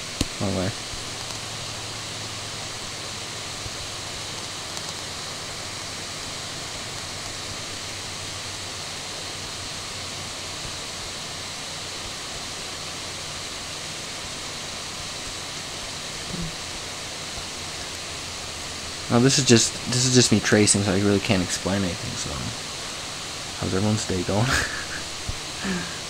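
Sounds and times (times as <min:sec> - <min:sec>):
steady background hiss: 0:00.0 - 0:26.0.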